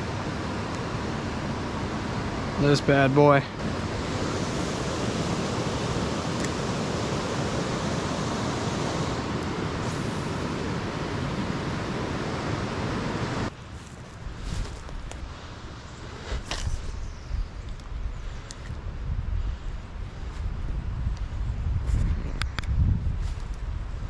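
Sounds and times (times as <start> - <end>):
creek water rushing: 0.0 - 13.8.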